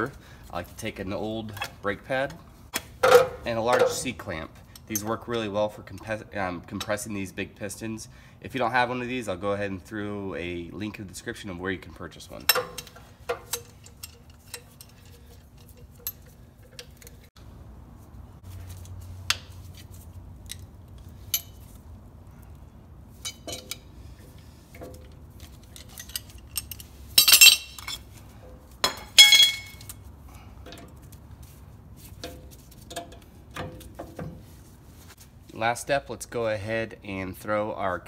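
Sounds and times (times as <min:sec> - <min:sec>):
metallic clicks and clinks: 0:25.6 - 0:28.0.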